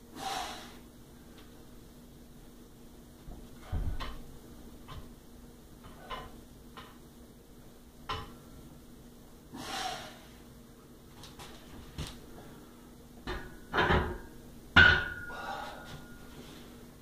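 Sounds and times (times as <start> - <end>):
strained exhale: 0.1 - 0.8, 9.5 - 10.4, 15.3 - 16.7
man breathing sharply: 9.6 - 10.4, 15.2 - 16.7.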